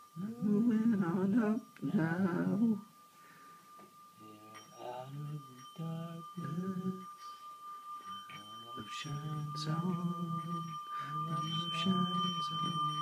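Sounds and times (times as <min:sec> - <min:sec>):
thin high tone: 0:00.0 - 0:13.0.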